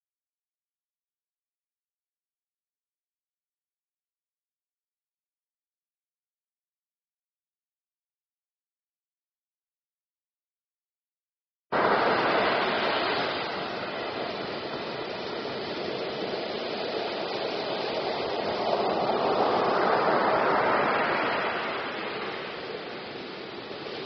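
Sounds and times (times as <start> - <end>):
waves breaking on beach: 11.7 - 24.0.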